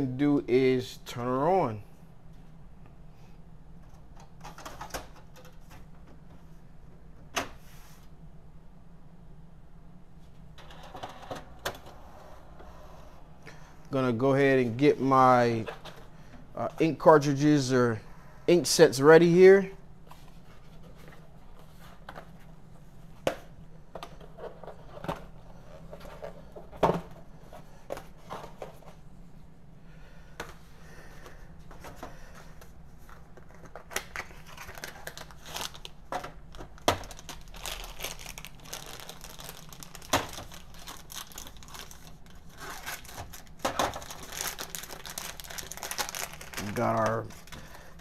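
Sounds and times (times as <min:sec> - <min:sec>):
wrapping crinkling and tearing: 0:33.4 - 0:47.8.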